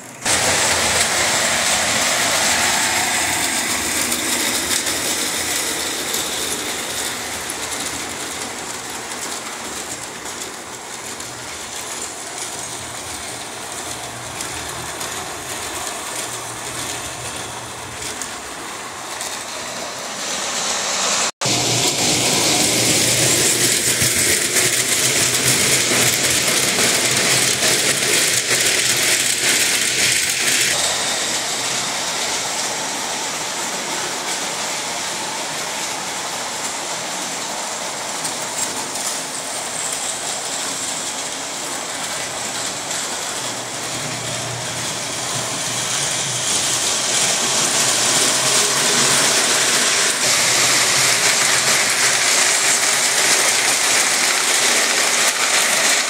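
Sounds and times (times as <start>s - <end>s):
toy train wheels clattering: 0.0s - 56.0s.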